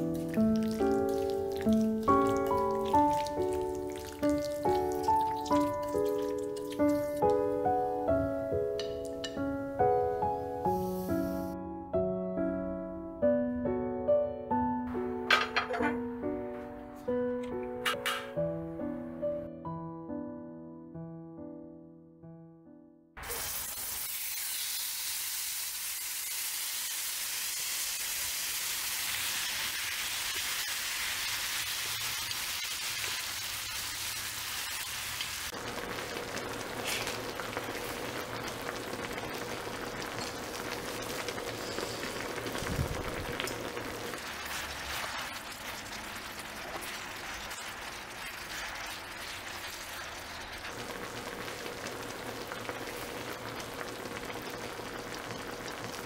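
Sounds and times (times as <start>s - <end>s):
chicken sizzling on griddle: 0.0s - 7.3s, 23.2s - 56.0s.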